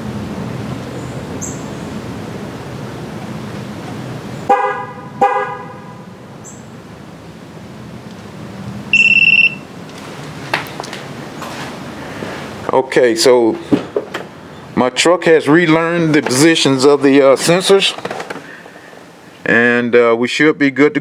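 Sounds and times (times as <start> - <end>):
car horn chirping: 4.5 - 6.2, 8.9 - 9.7
short high-pitched beep: 8.9 - 9.7.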